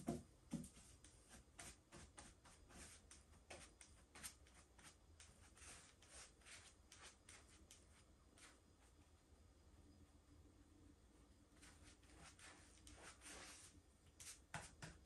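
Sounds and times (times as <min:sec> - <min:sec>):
paintbrush swishing across tabletop: 0:00.5 - 0:09.0, 0:11.6 - 0:15.0.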